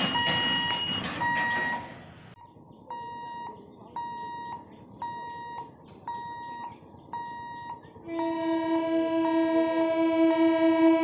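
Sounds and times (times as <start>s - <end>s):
crossing warning beeper: 0.0s - 2.0s, 2.9s - 10.9s
train horn: 8.1s - 11.0s.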